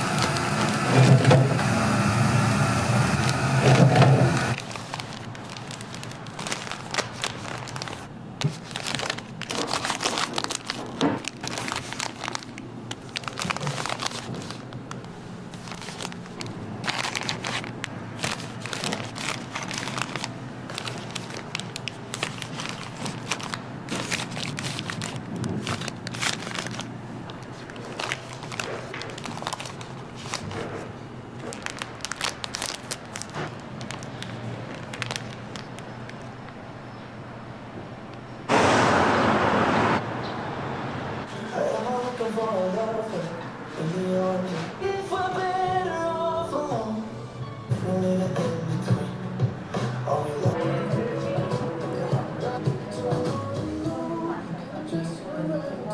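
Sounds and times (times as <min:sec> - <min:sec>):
plastic wrappers crinkling: 0:00.0 - 0:01.2, 0:04.4 - 0:36.6.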